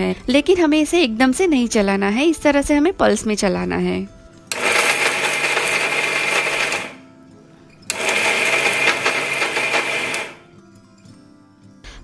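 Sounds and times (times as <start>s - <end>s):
mixer grinder running: 4.5s - 7.0s, 7.9s - 10.4s.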